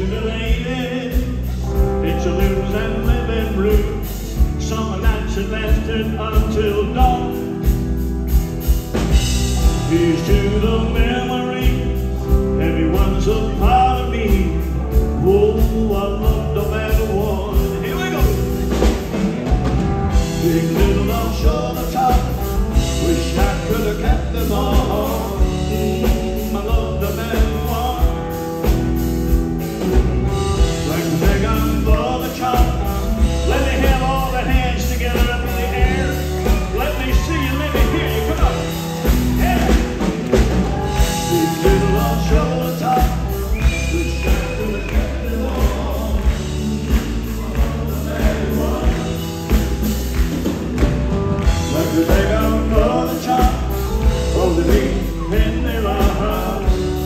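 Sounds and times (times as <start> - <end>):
live country band playing: 0.0 - 57.0
steady drumbeat: 0.0 - 57.0.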